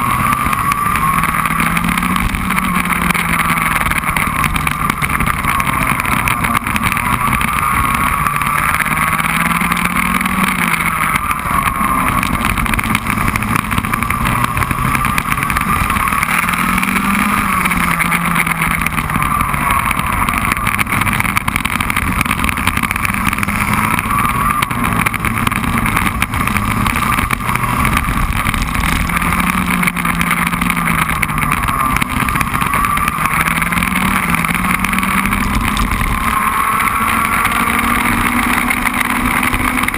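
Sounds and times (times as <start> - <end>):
kart engine revving: 0.0 - 39.9
wind and road noise: 0.0 - 39.9.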